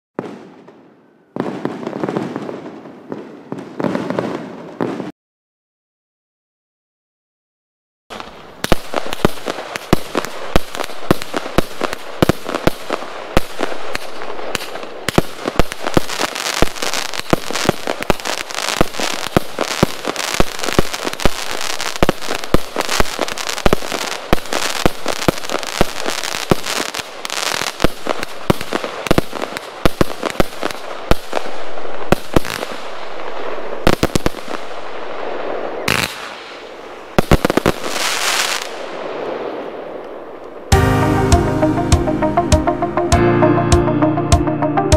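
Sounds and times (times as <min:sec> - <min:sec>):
firework shots bursting: 0:08.1 - 0:32.9, 0:35.8 - 0:39.3
firework crackling: 0:08.1 - 0:40.8.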